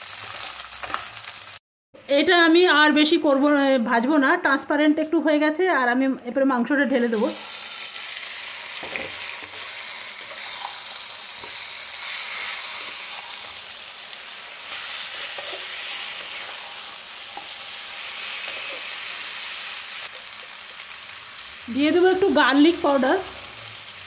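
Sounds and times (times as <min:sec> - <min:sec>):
chicken sizzling in oil: 0:00.0 - 0:01.6, 0:07.1 - 0:24.0.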